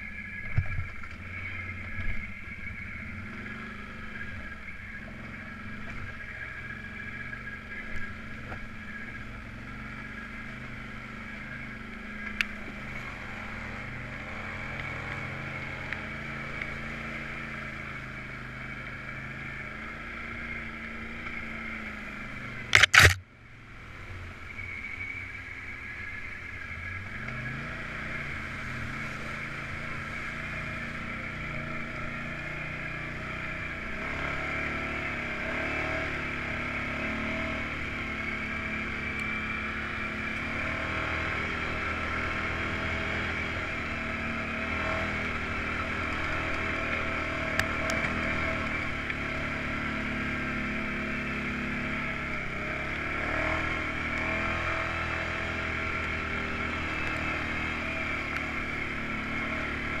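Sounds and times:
off-road vehicle engine running: 0:00.0 - 1:00.0
sharp click: 0:22.7 - 0:23.2.

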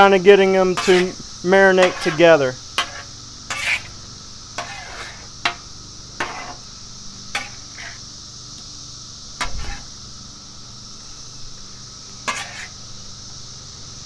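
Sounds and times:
cicada drone: 0:00.0 - 0:14.0
metal spatula scraping griddle: 0:00.6 - 0:04.0, 0:04.6 - 0:05.6, 0:06.2 - 0:06.7, 0:07.3 - 0:08.0, 0:09.4 - 0:09.9, 0:12.2 - 0:12.8.

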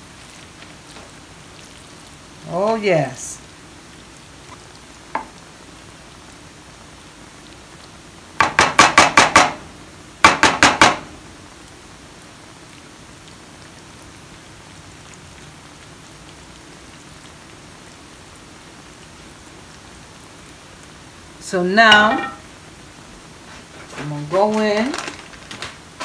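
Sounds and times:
wooden spoon tapping glass dish: 0:21.9 - 0:22.4.

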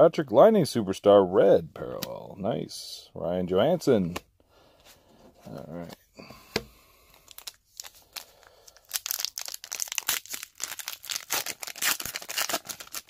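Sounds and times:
plastic wrapper torn and crinkled: 0:07.1 - 0:13.0.

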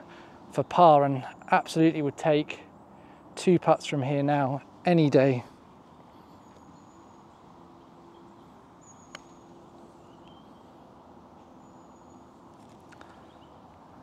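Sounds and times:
low outdoor background: 0:00.0 - 0:14.0
faint high bird chirps: 0:05.9 - 0:13.7
putter striking golf ball: 0:09.0 - 0:09.4.

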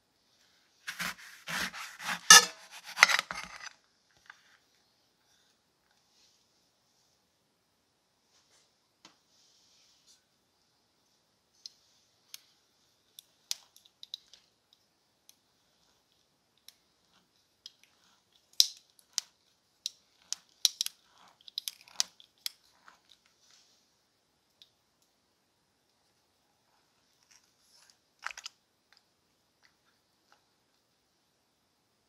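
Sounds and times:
juicy crunches of blades cutting fruit: 0:00.9 - 0:03.4.

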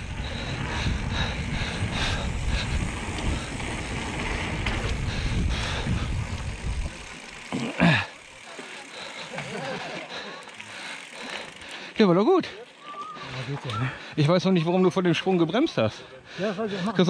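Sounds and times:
wind rushing over microphone: 0:00.0 - 0:07.1
tyres rolling on dirt trail: 0:00.0 - 0:17.0.

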